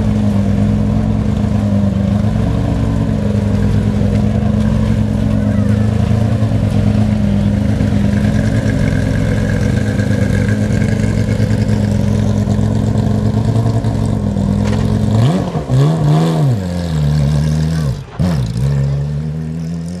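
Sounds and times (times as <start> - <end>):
car engine idling loudly: 0.0 - 15.8
engine revving: 0.0 - 20.0.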